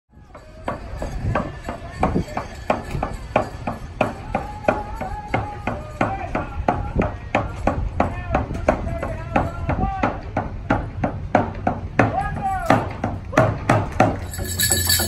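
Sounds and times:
percussive beat: 14.2 - 15.0.

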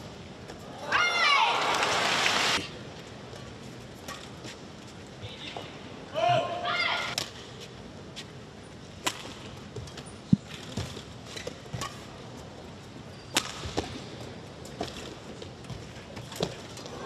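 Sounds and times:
racket hitting shuttlecock: 9.0 - 9.4, 13.3 - 14.0.

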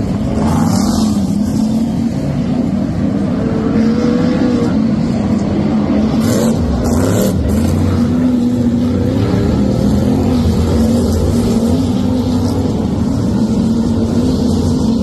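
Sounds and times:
race car engines racing past: 0.0 - 15.0.

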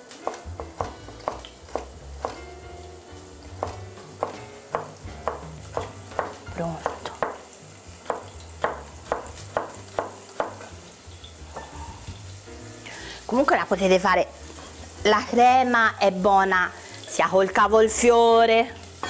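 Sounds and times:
onion sizzling in oil: 0.0 - 19.0
knife chopping on cutting board: 0.1 - 2.4, 3.6 - 7.4, 8.0 - 10.7.

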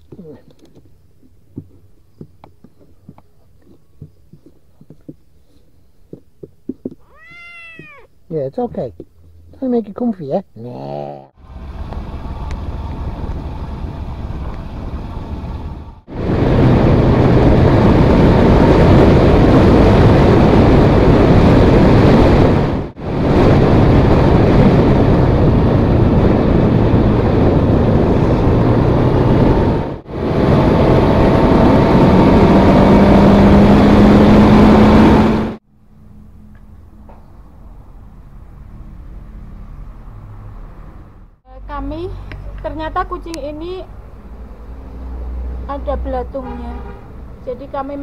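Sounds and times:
wind rushing over microphone: 11.5 - 35.6.

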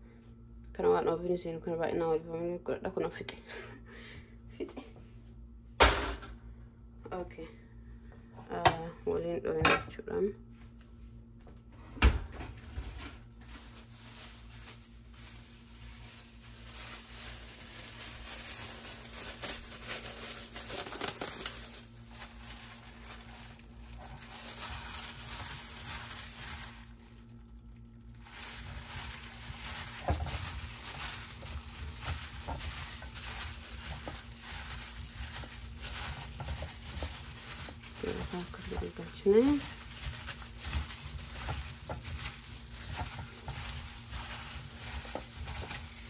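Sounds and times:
plastic glove crinkling: 12.8 - 46.0.

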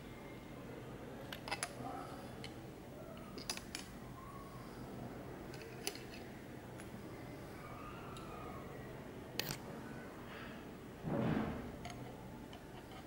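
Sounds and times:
sunglasses hinges clicking: 3.3 - 3.9.

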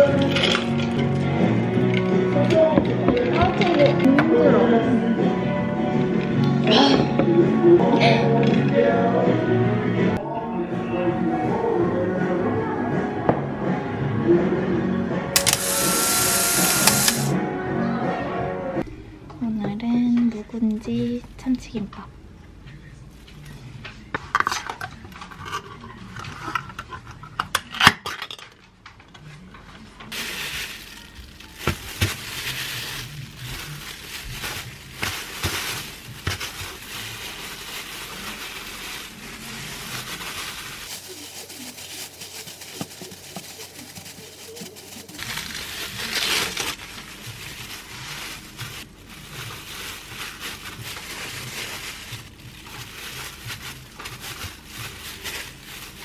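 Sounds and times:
can and utensils clicking: 15.4 - 17.3
plastic gloves rustling: 15.4 - 17.3, 30.1 - 56.0.

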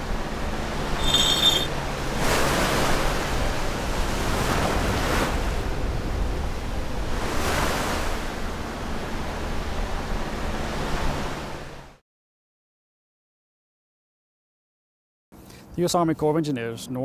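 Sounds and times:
low steady rumble: 0.0 - 12.0
ocean waves washing in: 0.0 - 12.0.

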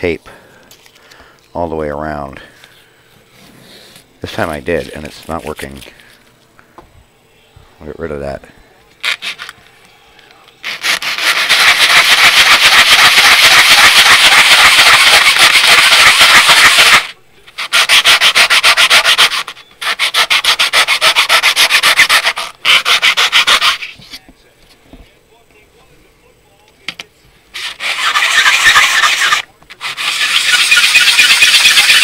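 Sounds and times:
plastic scraping on sandpaper: 3.4 - 6.2, 9.0 - 9.6, 10.6 - 24.3, 27.5 - 32.0.

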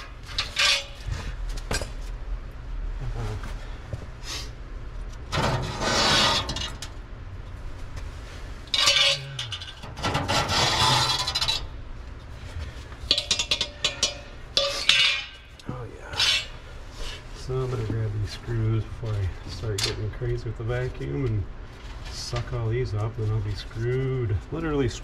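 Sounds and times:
sheet metal scraping and clinking: 0.0 - 1.1, 5.3 - 6.9, 8.7 - 11.7, 13.1 - 16.6.

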